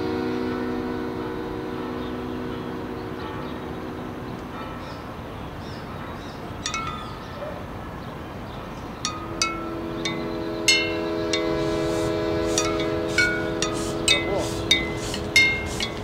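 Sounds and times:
low held chord: 0.0 - 4.7, 9.0 - 16.0
street ambience hiss: 0.0 - 16.0
chimes ringing: 6.6 - 7.4, 9.0 - 11.7, 12.6 - 16.0.

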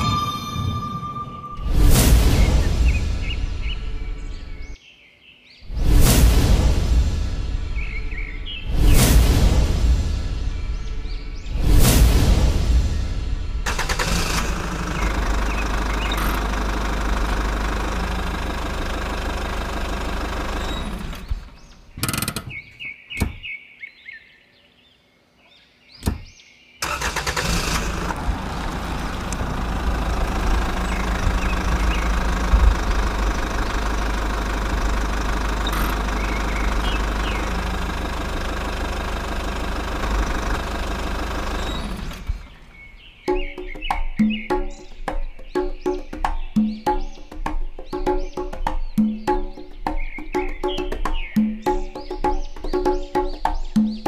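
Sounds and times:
tractor engine running: 13.6 - 22.6, 26.8 - 42.9.

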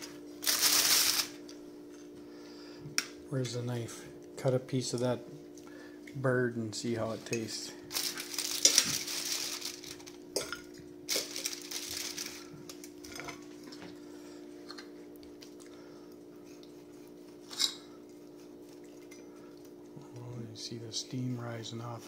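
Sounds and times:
steady low hum: 0.0 - 22.0
aluminium foil crinkling: 0.4 - 1.6, 7.9 - 10.5, 11.1 - 13.0.

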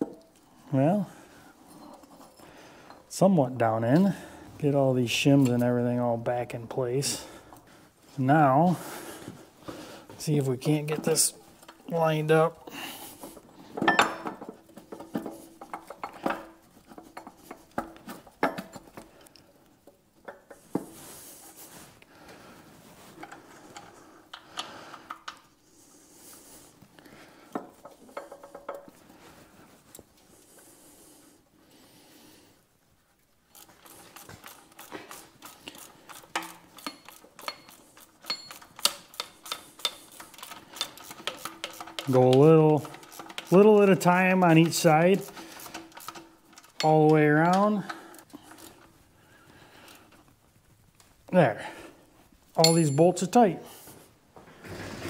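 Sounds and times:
ratchet clicks: 33.5 - 43.6, 44.6 - 46.9
metal gears clinking: 52.6 - 53.0.

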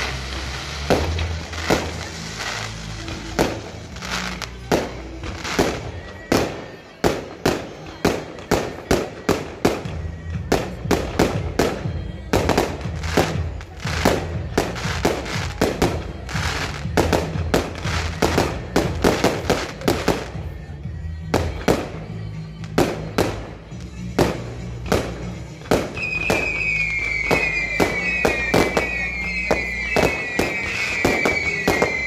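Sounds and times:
fireworks bursting: 0.0 - 32.0
music: 0.0 - 32.0.

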